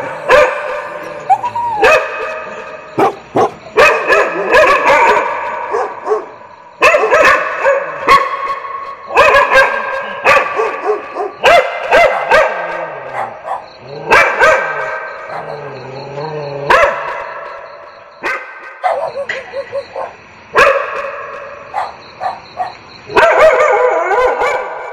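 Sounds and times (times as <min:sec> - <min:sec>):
low wavering dog call: 0:00.0 - 0:03.2
dogs barking: 0:00.0 - 0:24.9.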